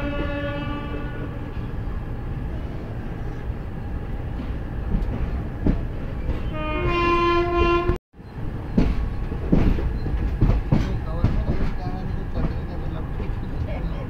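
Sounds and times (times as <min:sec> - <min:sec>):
train horn: 0:00.0 - 0:01.5, 0:06.4 - 0:08.0
train rumble: 0:00.0 - 0:14.0
wheels clattering over rails: 0:08.3 - 0:14.0.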